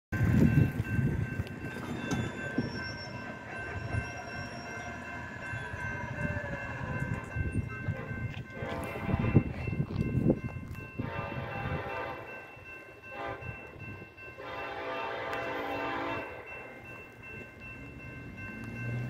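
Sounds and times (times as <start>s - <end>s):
crossing warning bell ringing: 0.1s - 19.0s
wind rumble on microphone: 0.2s - 2.2s, 5.5s - 12.2s.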